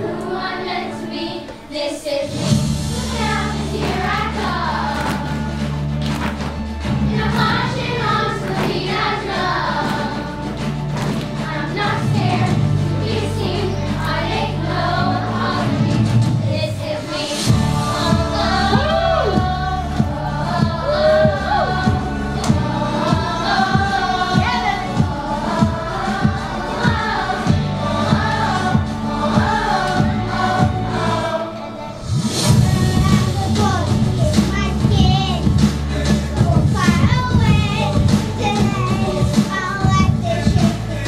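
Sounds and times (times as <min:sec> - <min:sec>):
voices singing in chorus: 0:00.0 - 0:41.0
steady beat: 0:17.5 - 0:31.2.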